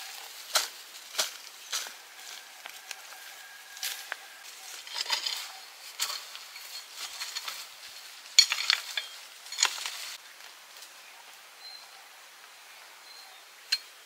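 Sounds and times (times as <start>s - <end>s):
metal utensil scraping a pan: 4.7s - 7.7s.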